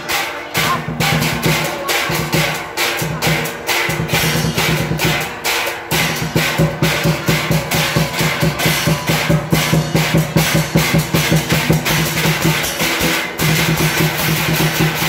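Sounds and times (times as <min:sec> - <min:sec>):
drum and percussion music: 0:00.0 - 0:15.0.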